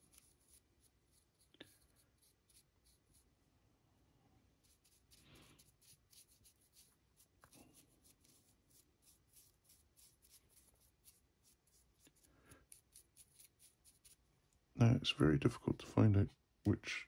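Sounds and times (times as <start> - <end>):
paintbrush bristles scratching: 0.0 - 3.3, 4.6 - 14.2.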